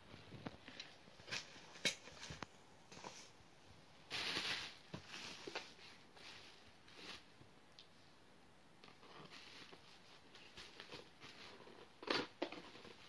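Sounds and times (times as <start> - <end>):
bubble wrap crinkling: 4.1 - 7.3.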